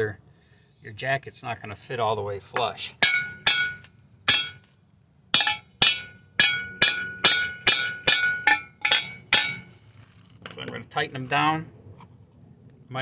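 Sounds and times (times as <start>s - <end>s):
hammer striking metal bolts: 3.0s - 4.7s, 5.4s - 9.7s.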